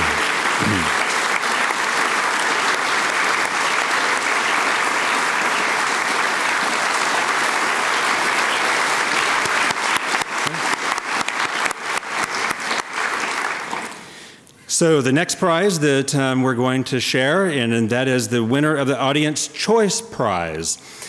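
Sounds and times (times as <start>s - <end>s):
audience applauding: 0.0s - 14.1s.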